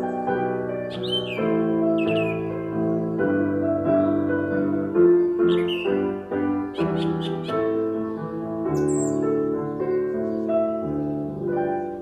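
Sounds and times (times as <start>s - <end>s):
high bird chirps: 0.0s - 3.2s, 5.1s - 11.2s
piano playing children's song: 0.0s - 12.0s.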